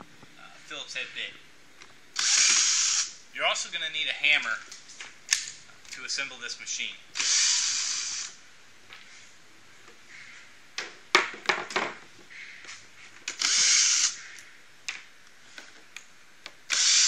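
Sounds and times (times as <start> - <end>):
cordless drill running: 2.2 - 3.2, 7.2 - 8.4, 13.3 - 14.2, 16.7 - 17.0.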